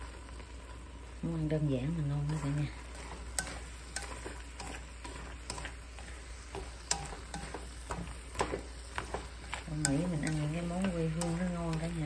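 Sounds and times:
food sizzling in a wok: 0.0 - 12.0
chopsticks scraping a pan: 2.1 - 12.0.

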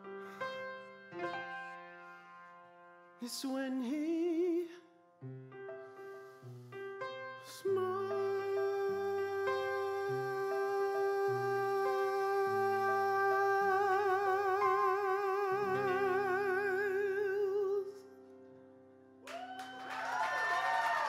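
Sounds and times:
piano chords: 0.0 - 19.3
man singing with vibrato: 3.2 - 4.9, 7.5 - 18.1
applause: 19.2 - 21.0
whooping cheers: 19.3 - 21.0.

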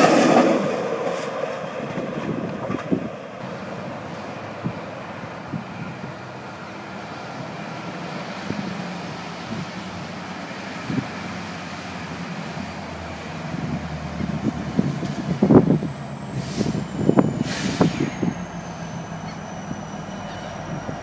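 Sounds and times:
locomotive engine rumble: 0.0 - 21.0.

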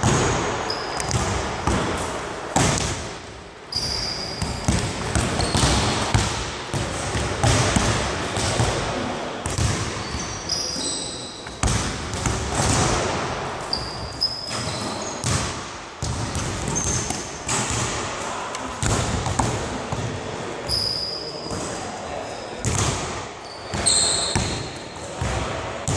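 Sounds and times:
basketballs bouncing on wood floor: 0.0 - 2.0, 2.6 - 3.2, 3.9 - 10.4, 11.4 - 18.1, 18.8 - 20.2, 22.6 - 25.9
sneakers squeaking on floor: 0.0 - 2.1, 3.7 - 6.8, 9.5 - 12.9, 13.6 - 17.8, 19.3 - 25.9.

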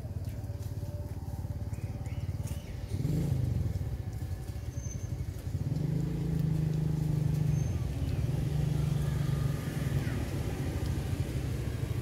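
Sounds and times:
small engine running: 0.0 - 12.0.

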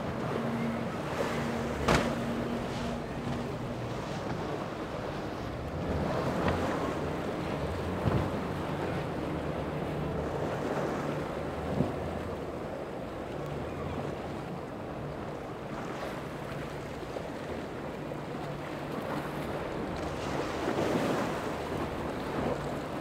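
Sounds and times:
powerboat engines: 0.0 - 23.0
surf: 0.0 - 23.0
sharp water slaps: 1.7 - 3.4.

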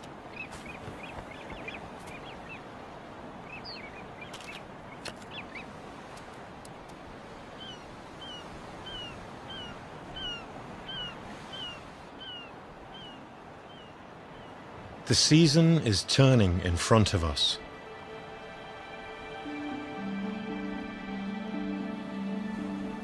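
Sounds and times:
birds chirping: 0.0 - 5.8, 7.5 - 23.0
steady background hiss: 7.2 - 23.0.

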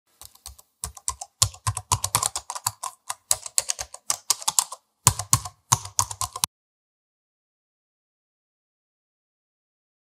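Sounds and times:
computer keyboard typing: 0.2 - 6.5.

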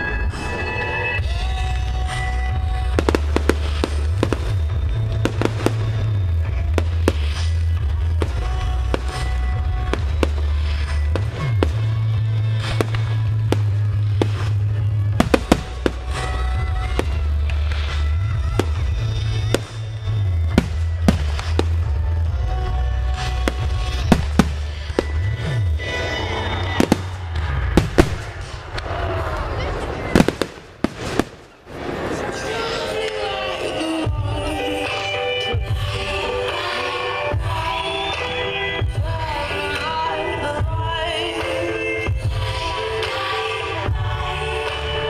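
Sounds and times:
heavy bass music: 0.0 - 28.7
fireworks bangs: 0.0 - 35.0.

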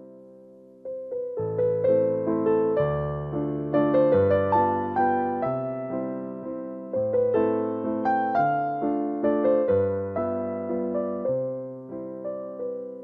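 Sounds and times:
electric piano melody: 0.0 - 13.0.

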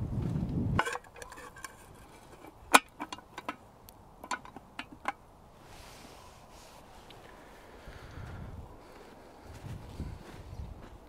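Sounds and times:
low noise: 0.0 - 11.0
campfire crackling: 0.8 - 9.6.

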